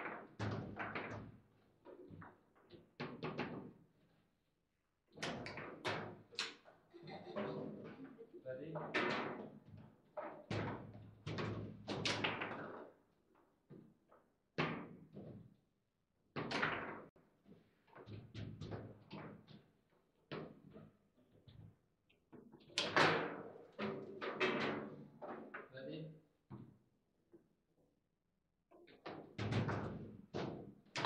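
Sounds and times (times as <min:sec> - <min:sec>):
foosball ball and rods knocking: 0:00.0 - 0:03.8, 0:10.2 - 0:13.0, 0:22.4 - 0:25.6.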